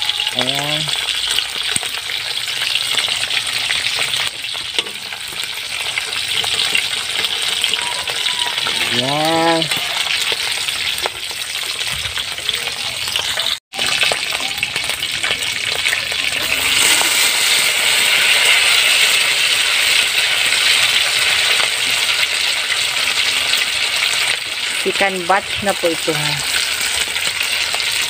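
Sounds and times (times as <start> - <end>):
fritters sizzling in hot oil: 0.0 - 28.0
metal spoon scraping a pan: 0.9 - 8.9.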